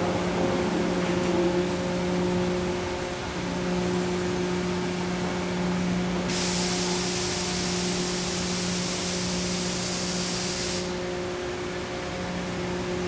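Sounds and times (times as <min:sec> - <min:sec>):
machine hum: 0:00.0 - 0:13.0
loud steady hiss: 0:06.2 - 0:11.4.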